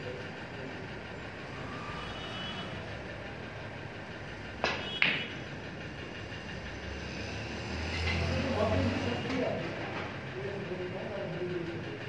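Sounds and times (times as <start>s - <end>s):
steady background hum: 0.0s - 12.0s
cue striking ball click: 4.6s - 5.4s
snooker balls clicking together: 4.6s - 5.4s.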